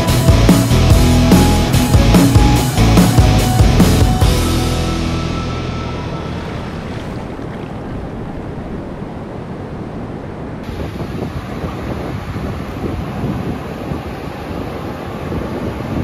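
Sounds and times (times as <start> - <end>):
wind buffeting microphone: 4.8 - 16.0
ocean surf washing on beach: 4.9 - 16.0.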